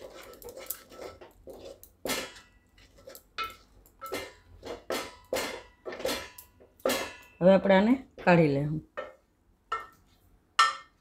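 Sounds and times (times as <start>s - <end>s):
metal spoon scraping a metal pot: 0.0s - 7.4s.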